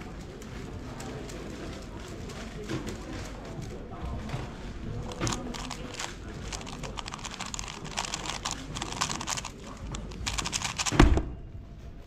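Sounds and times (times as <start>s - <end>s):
rapid plastic cube clicks: 5.1s - 11.1s.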